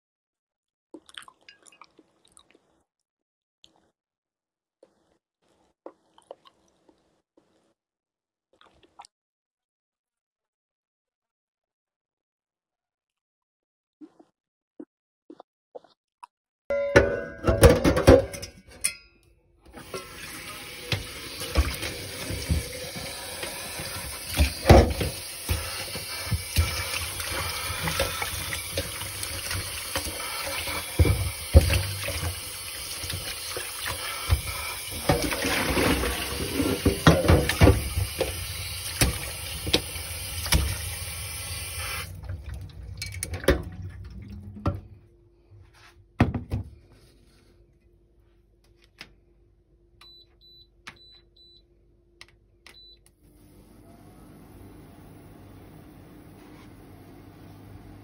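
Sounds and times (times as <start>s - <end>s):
knocks against metal pot: 16.7s - 18.5s
tap water filling metal pot: 19.7s - 44.9s.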